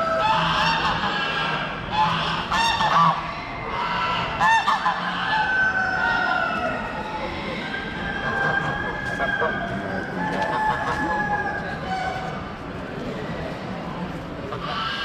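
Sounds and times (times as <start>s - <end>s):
geese honking: 0.0s - 6.5s, 14.5s - 15.0s
background din of hall: 0.0s - 15.0s.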